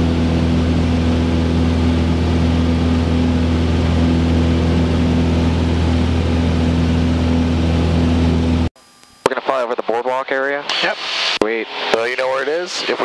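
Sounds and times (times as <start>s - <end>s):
aircraft engine and propeller droning: 0.0s - 8.7s.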